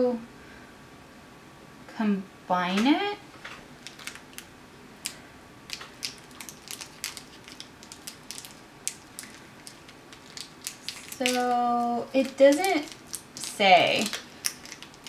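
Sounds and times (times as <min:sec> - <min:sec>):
small clicks and crinkles: 0:03.4 - 0:15.0.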